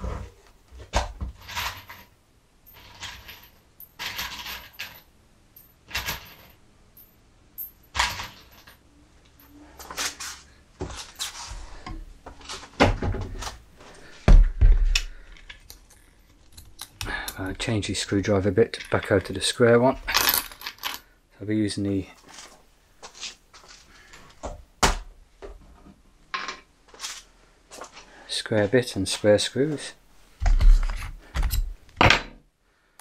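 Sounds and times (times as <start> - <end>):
metal screws clinking and rattling: 2.7 - 8.8, 18.6 - 21.1, 30.5 - 31.8.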